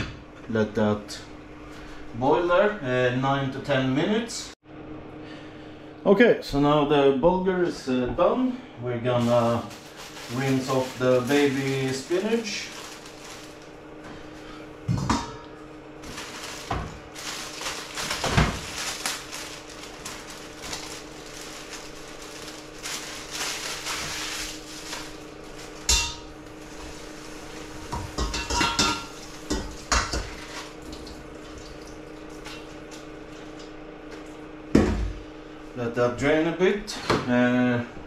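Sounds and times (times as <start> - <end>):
steady low hum: 0.0 - 38.0
kitchenware clattering: 27.9 - 30.5
running tap water: 30.4 - 32.9.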